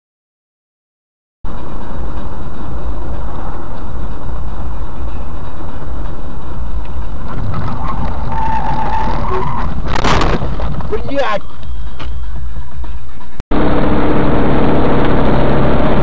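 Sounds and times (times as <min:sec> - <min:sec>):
thin steady tone: 0:01.5 - 0:07.4
car road and engine rumble: 0:01.5 - 0:16.0.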